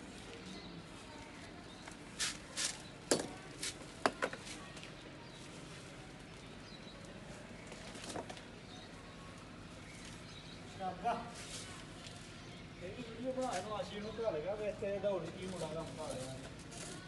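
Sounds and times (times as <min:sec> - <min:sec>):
faint outdoor background noise: 0:00.0 - 0:17.0
scuffs and clicks on concrete: 0:01.9 - 0:02.8.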